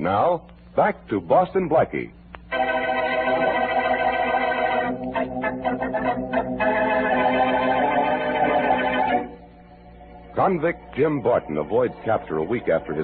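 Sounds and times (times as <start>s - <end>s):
organ sustained chords: 0.0s - 13.0s.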